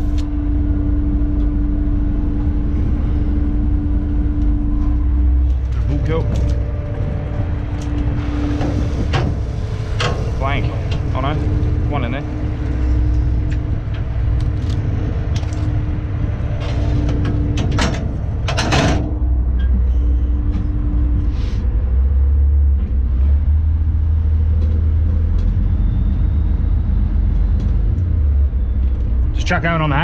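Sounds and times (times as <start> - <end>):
boat diesel engine rumbling: 0.0 - 30.0
knocks and clatters: 5.5 - 19.9.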